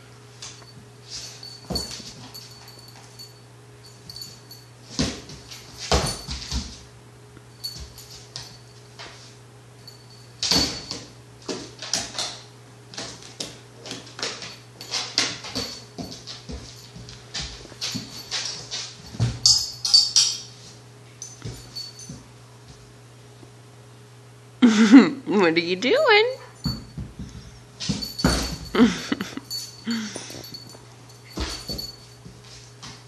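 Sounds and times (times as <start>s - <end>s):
puppy knocking toys on hard floor: 26.7s - 28.7s.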